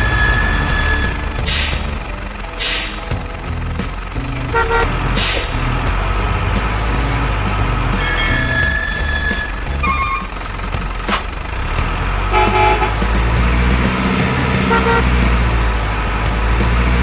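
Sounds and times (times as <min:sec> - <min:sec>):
truck horn toots: 0:00.0 - 0:03.6, 0:04.4 - 0:06.4, 0:07.8 - 0:10.5, 0:11.6 - 0:16.0
heavy truck engine running: 0:00.0 - 0:17.0.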